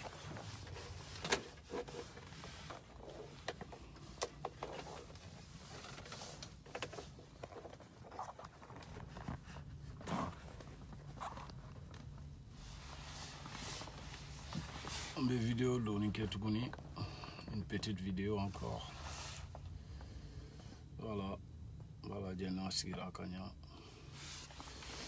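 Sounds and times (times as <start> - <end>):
jacket rustling: 0.0 - 15.6.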